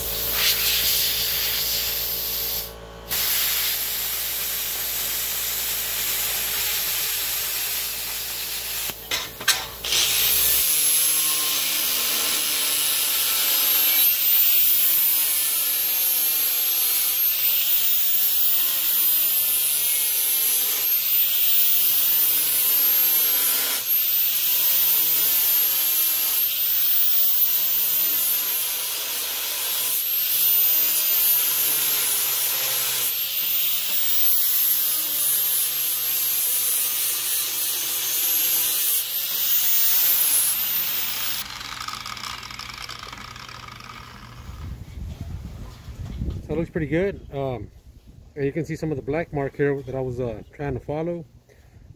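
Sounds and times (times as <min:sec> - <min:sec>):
angle grinder grinding steel: 0:00.0 - 0:44.7
plasma cutter hissing: 0:00.2 - 0:09.0.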